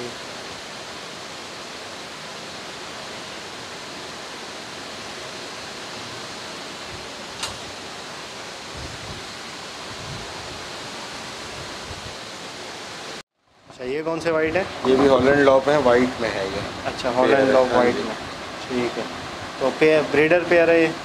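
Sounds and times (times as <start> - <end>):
rushing hiss: 0.0 - 21.0
sharp click: 7.4 - 7.6.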